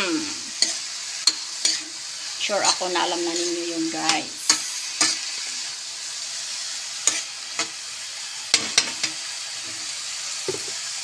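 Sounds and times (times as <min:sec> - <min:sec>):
beans sizzling in hot oil: 0:00.0 - 0:11.0
metal spatula scraping wok: 0:00.1 - 0:05.8, 0:06.9 - 0:10.0.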